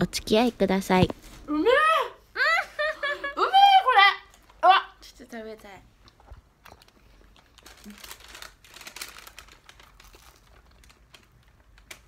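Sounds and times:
paper bag crinkling: 0:06.8 - 0:12.0.

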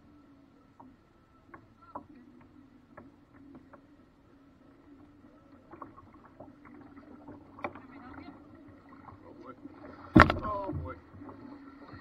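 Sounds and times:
faint low hum: 0:00.0 - 0:12.0
knocks against boat hull: 0:10.1 - 0:10.8.

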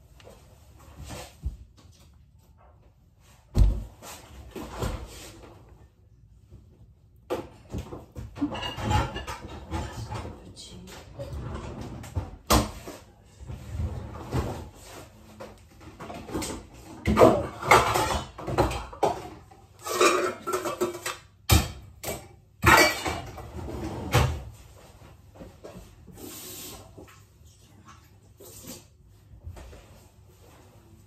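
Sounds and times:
dishes and pans clattering: 0:07.4 - 0:10.4, 0:15.8 - 0:24.5.

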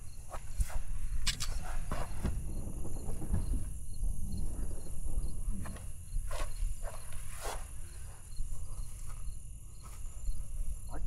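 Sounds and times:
insects chirping: 0:00.0 - 0:11.0
low rumble: 0:02.3 - 0:06.2.

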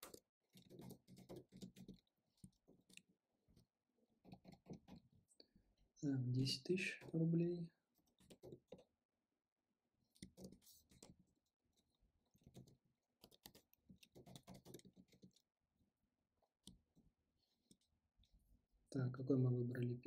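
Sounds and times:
faint keyboard typing: 0:00.0 - 0:03.1, 0:08.0 - 0:08.9, 0:10.1 - 0:15.5.

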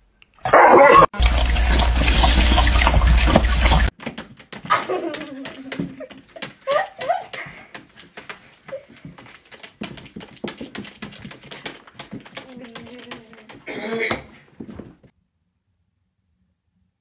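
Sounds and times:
cat claws scrabbling on plastic: 0:03.9 - 0:15.1
drawn-out voice: 0:11.4 - 0:14.9.

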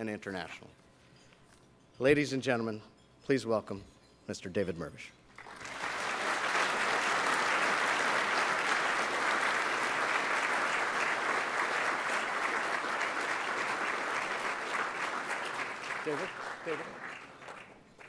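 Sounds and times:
audience applauding: 0:05.4 - 0:18.0.

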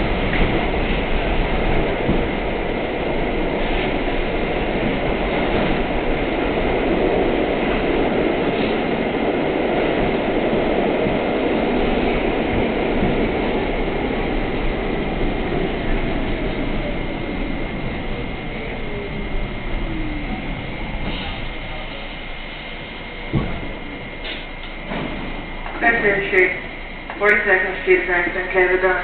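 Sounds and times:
subway wheels rumbling on track: 0:00.0 - 0:29.0.

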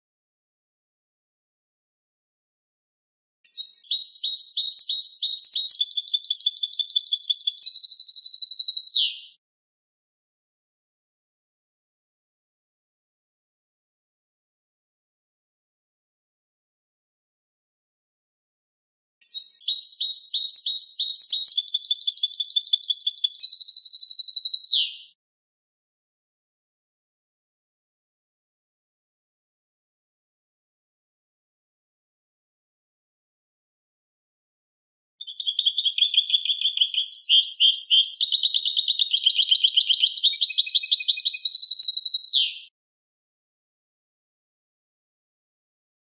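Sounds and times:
goldfinch singing: 0:03.5 - 0:09.3, 0:19.2 - 0:25.0, 0:35.2 - 0:42.7.

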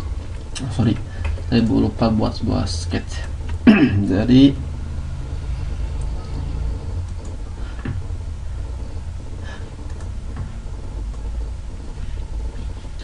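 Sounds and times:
low background rumble: 0:00.0 - 0:13.0
faint clicks: 0:09.8 - 0:10.1.

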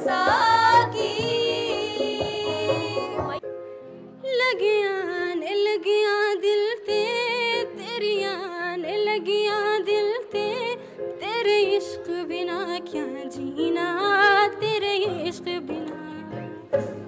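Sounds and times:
woman singing into a microphone: 0:04.2 - 0:16.7.

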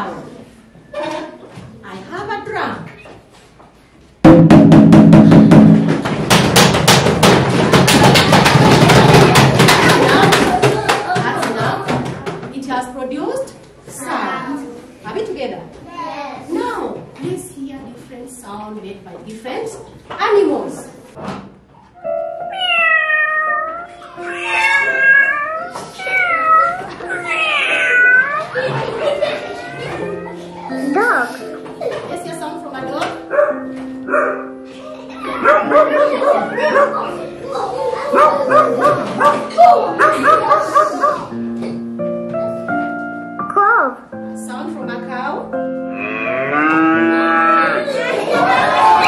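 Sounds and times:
fast drumming: 0:04.2 - 0:12.4
background music with held notes: 0:21.9 - 0:49.0
cat meowing: 0:22.5 - 0:28.6.

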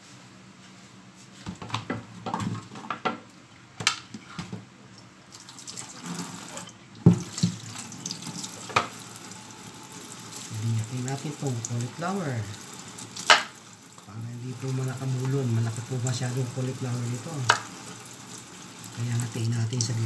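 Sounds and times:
tap running water: 0:05.3 - 0:20.0
board knocking against sink: 0:07.0 - 0:07.6.

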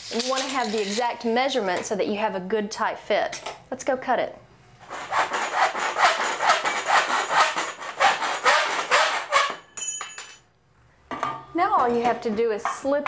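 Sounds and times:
hacksaw cutting metal: 0:04.9 - 0:09.7
high metallic ring: 0:09.5 - 0:10.5.

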